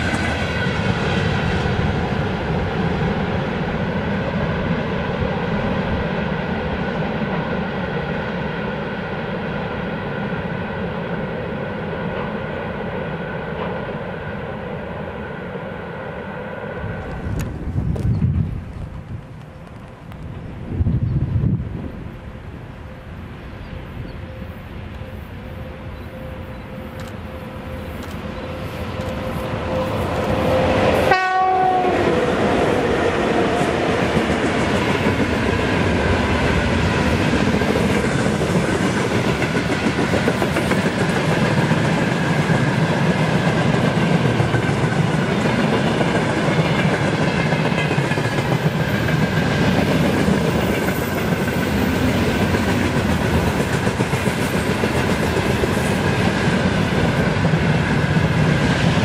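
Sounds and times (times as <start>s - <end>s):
train cars rumbling past: 0.0s - 59.0s
train horn: 24.1s - 33.8s
wheels clacking on rails: 24.8s - 59.0s.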